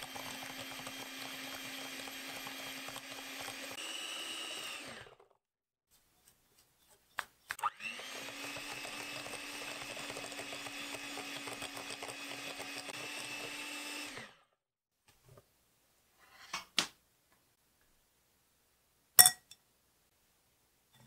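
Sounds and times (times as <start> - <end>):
electric hand mixer running: 0.0 - 5.4, 7.6 - 14.5
beaters in a glass bowl: 19.2 - 19.6.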